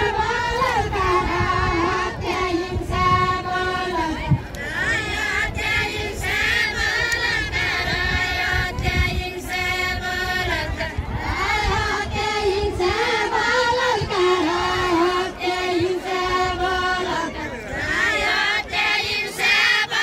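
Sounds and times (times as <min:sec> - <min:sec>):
group of women singing folk song: 0:00.0 - 0:20.0.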